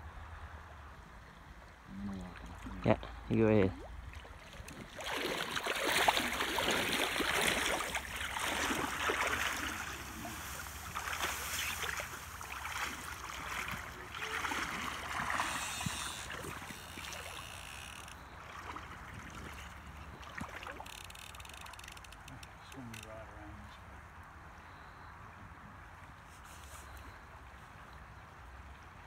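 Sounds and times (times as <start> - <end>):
fish thrashing water splashing: 4.0 - 22.3.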